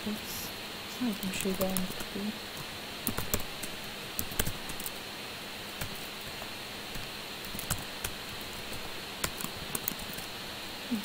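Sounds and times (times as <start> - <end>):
steady hiss: 0.0 - 11.0
keyboard typing: 3.0 - 5.0, 5.8 - 10.3.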